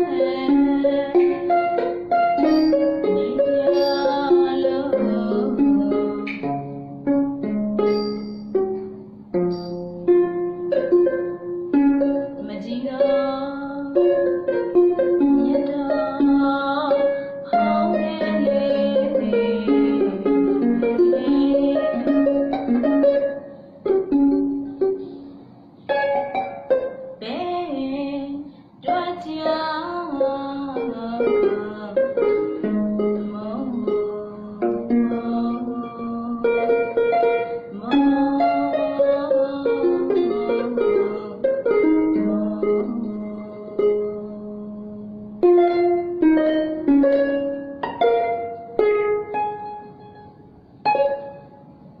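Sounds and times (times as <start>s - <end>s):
woman singing: 0.0s - 6.6s, 12.3s - 22.8s, 27.2s - 47.0s
plucked harp: 0.0s - 52.0s.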